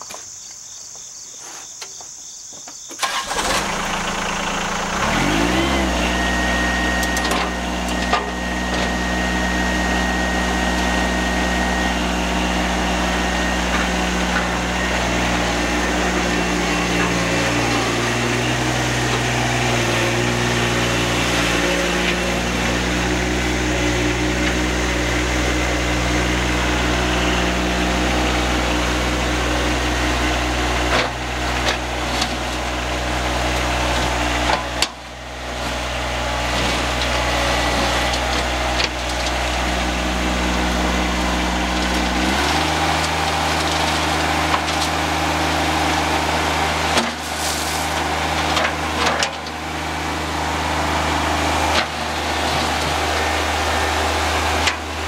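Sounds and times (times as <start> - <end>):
tractor diesel engine running: 2.9 - 55.0.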